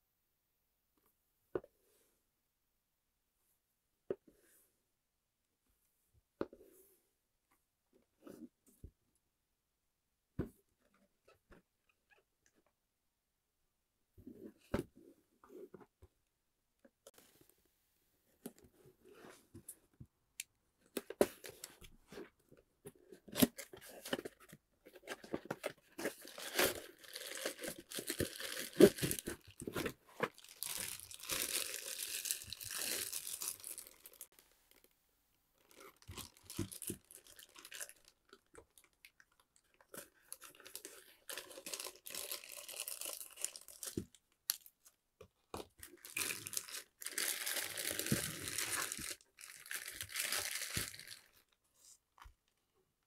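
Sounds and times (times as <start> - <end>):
plastic bags crinkling: 26.2 - 29.6, 30.3 - 34.3, 40.5 - 44.1, 45.9 - 51.3.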